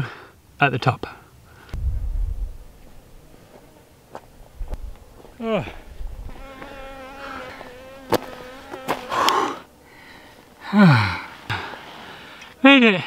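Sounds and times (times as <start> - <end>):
flying insect buzzing: 1.7 - 10.6
man sighing loudly: 10.6 - 11.8.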